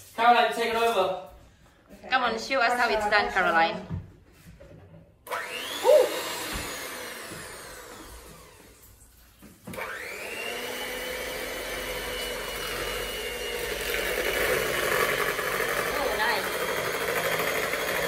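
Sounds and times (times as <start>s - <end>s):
electric hand mixer whining: 5.2s - 18.0s.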